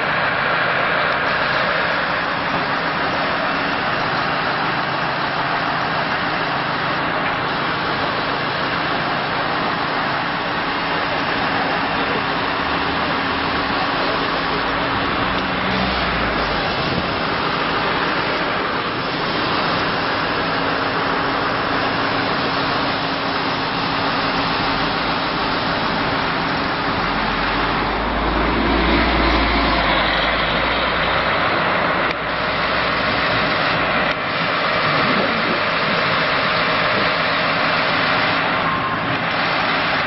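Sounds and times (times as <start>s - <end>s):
bus engine rumble passing: 0.0s - 40.0s
diesel engines and street traffic: 0.0s - 40.0s.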